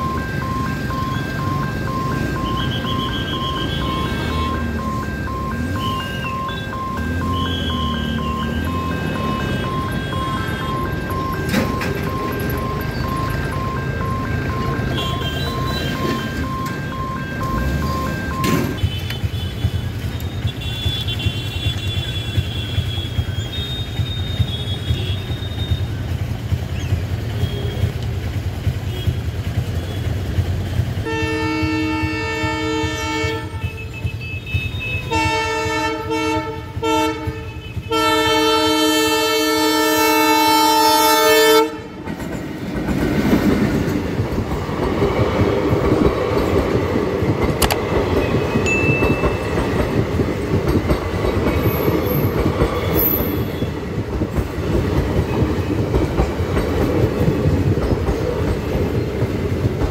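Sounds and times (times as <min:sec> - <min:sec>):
train coaches clattering on rails: 0:00.0 - 0:59.9
train air horn blasts: 0:31.0 - 0:42.1.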